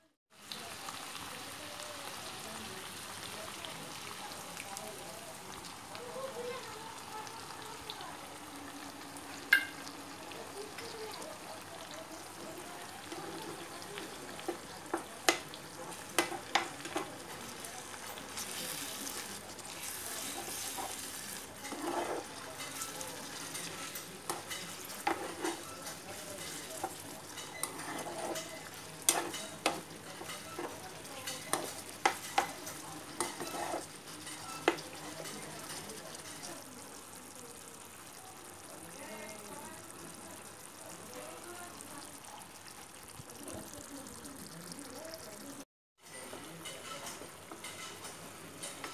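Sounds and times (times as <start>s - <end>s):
gravy sizzling in a frying pan: 0.0s - 48.9s
spatula scraping a pan: 13.0s - 36.5s, 46.1s - 48.9s.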